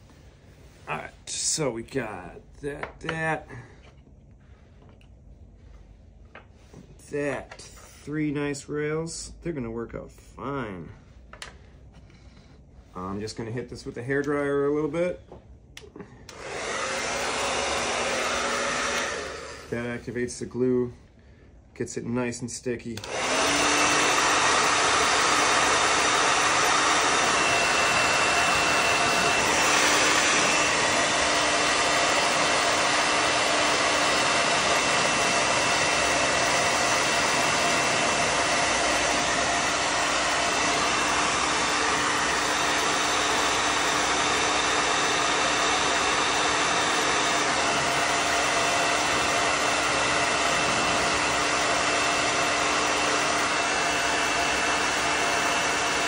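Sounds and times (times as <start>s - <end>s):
hair dryer running: 15.7s - 20.2s, 23.0s - 56.0s.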